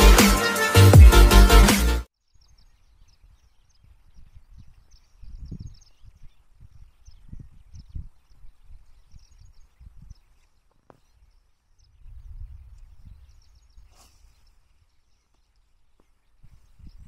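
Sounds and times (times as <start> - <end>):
faint bird chirps: 2.2 - 17.0
wind rumble on microphone: 2.8 - 15.0, 16.2 - 17.0.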